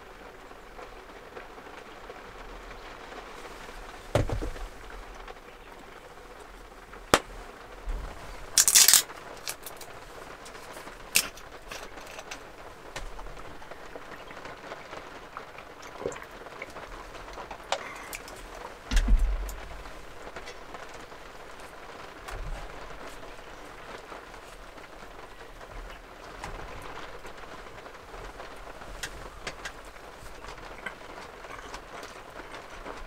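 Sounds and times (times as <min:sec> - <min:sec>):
heavy rain on roof: 0:00.0 - 0:33.0
brief crackle: 0:08.5 - 0:13.2
plastic bottle cap twisting open: 0:08.6 - 0:09.8.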